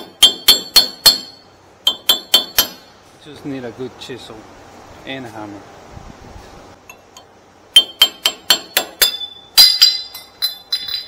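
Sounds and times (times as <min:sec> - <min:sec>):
hammer striking steel chisel: 0:00.0 - 0:02.9, 0:07.8 - 0:11.0.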